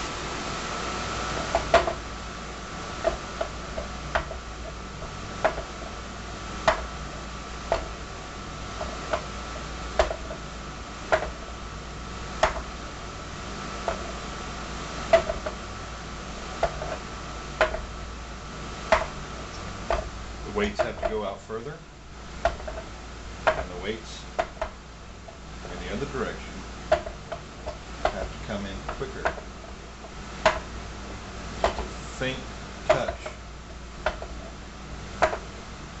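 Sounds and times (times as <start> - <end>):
faint hum: 0.0 - 36.0
weights clicking and knocking: 3.0 - 5.9, 10.0 - 10.4, 11.1 - 11.4, 15.1 - 15.6, 17.6 - 17.9, 18.9 - 21.2, 22.4 - 24.8, 26.9 - 30.7, 31.6 - 31.9, 32.9 - 33.4, 34.0 - 34.4, 35.2 - 35.5.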